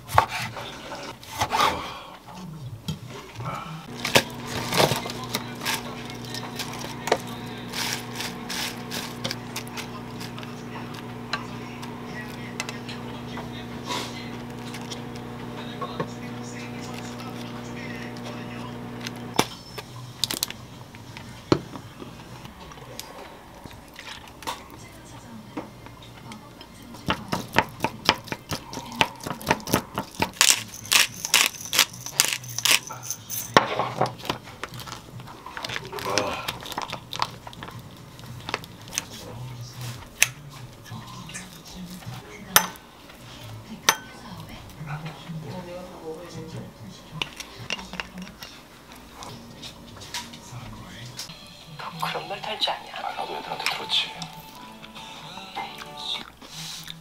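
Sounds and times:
lettuce leaves tearing: 3.9s - 11.0s, 34.6s - 39.1s
pepper grinder rasping: 3.9s - 21.1s, 27.1s - 33.6s, 34.2s - 39.1s.

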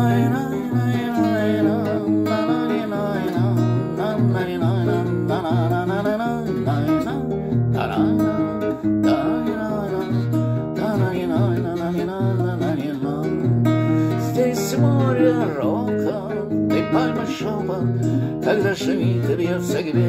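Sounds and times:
acoustic guitar strumming: 0.0s - 20.0s
man singing: 0.0s - 20.0s.

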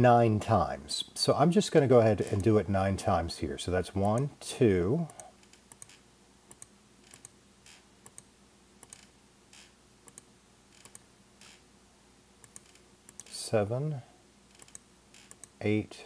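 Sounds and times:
faint mouse clicks: 8.0s - 9.1s.

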